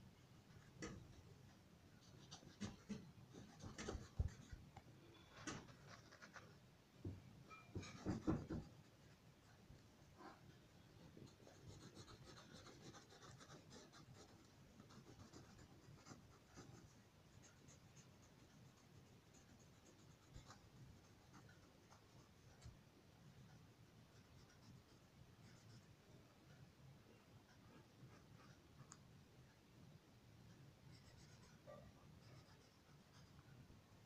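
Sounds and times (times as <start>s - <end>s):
crayon scratching on paper: 11.2s - 22.7s.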